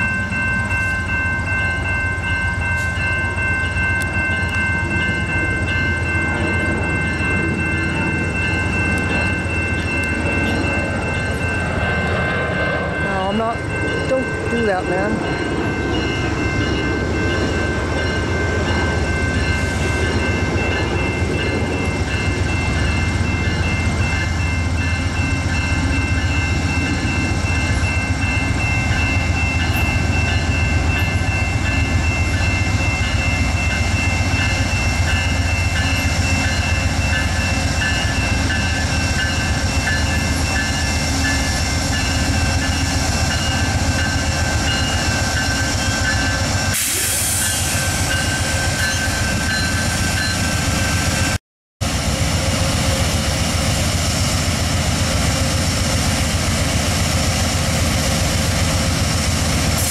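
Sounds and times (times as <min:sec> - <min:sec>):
diesel locomotive engine rumble: 0:00.0 - 0:59.9.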